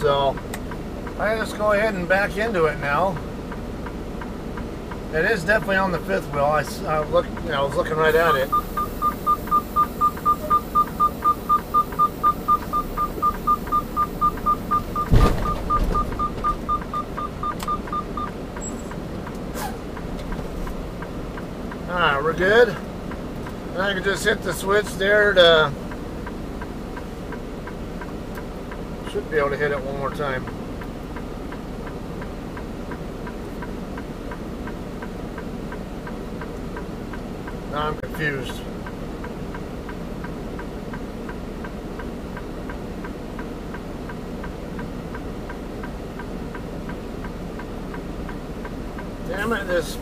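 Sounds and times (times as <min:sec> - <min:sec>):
diesel truck engine idling: 0:04.7 - 0:29.2, 0:41.5 - 0:50.0
truck reverse warning beeper: 0:08.1 - 0:19.0
heavy thump of truck coupling: 0:15.0 - 0:16.7
light ticking: 0:38.5 - 0:49.8.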